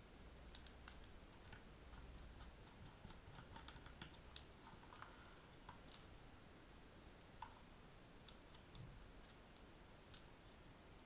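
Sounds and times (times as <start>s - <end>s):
hard drive clicks and taps: 7.4s - 10.3s.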